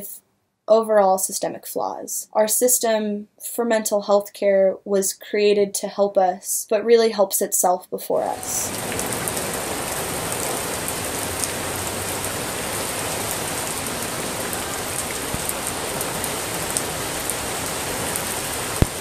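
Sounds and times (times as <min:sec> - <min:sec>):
steady rain: 0:08.3 - 0:19.0
raindrops ticking: 0:08.4 - 0:19.0.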